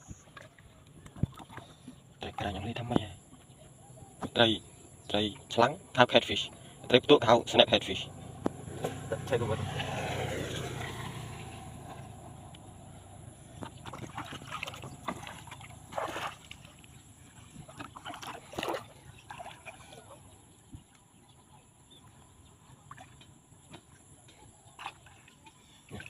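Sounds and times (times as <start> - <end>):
shallow water splashing and sloshing: 0.1 - 4.9, 8.1 - 26.0
bucket moving through water: 0.2 - 3.6, 7.9 - 20.6, 21.9 - 26.0.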